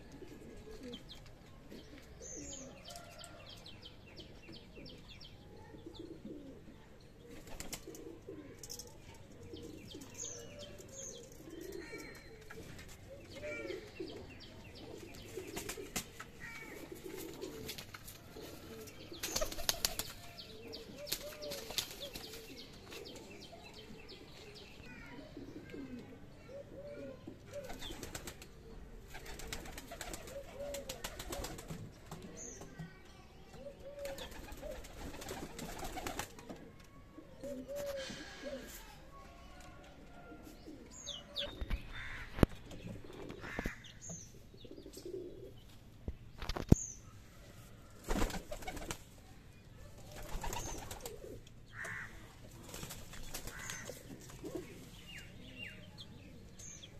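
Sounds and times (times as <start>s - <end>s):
pigeons cooing: 0.0s - 3.4s, 4.7s - 32.4s, 33.6s - 38.9s, 40.1s - 43.9s, 44.5s - 45.6s, 50.1s - 52.1s, 53.4s - 56.4s
small birds chirping: 0.0s - 39.8s, 40.4s - 47.3s, 48.1s - 56.9s
wings flapping: 19.2s - 20.3s, 21.0s - 23.0s, 29.1s - 31.8s, 34.0s - 36.5s, 48.0s - 49.0s, 50.1s - 51.2s, 52.6s - 54.0s.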